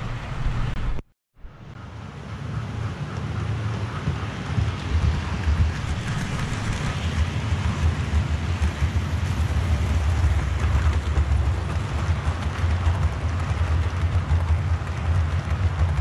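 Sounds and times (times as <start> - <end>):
model trains rumbling past: 0.0 - 16.0
wheels rattling on rail: 1.6 - 16.0.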